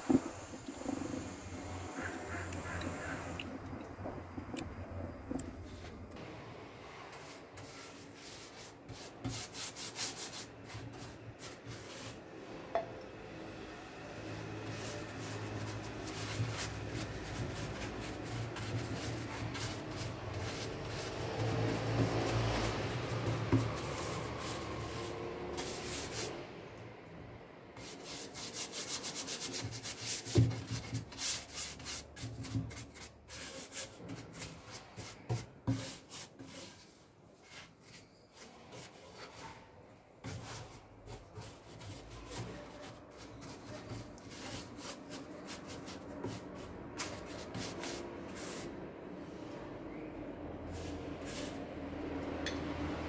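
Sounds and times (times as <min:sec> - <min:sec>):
paintbrush scrubbing on wood: 0:07.1 - 0:12.2, 0:14.2 - 0:26.4, 0:27.8 - 0:49.0, 0:50.6 - 0:52.2.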